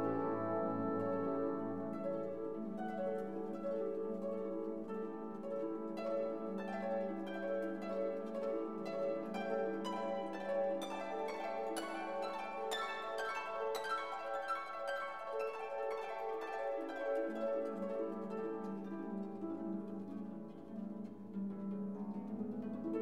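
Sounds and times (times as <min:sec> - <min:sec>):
plucked strings over sustained tones: 0:00.0 - 0:23.0.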